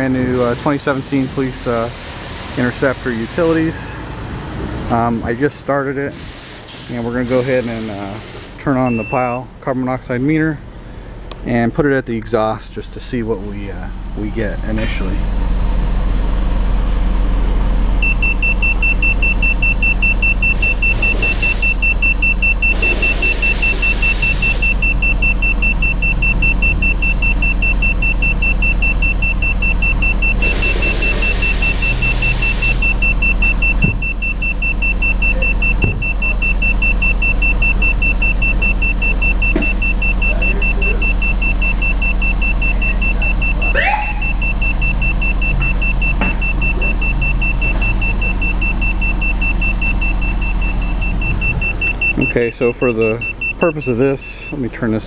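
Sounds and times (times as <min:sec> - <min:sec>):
hiss: 0:00.4 - 0:03.8, 0:06.1 - 0:08.6, 0:20.6 - 0:21.8, 0:30.4 - 0:32.9
car exhaust idling rumble: 0:06.9 - 0:55.0
high electronic beep tone: 0:08.8 - 0:09.4, 0:18.0 - 0:54.6.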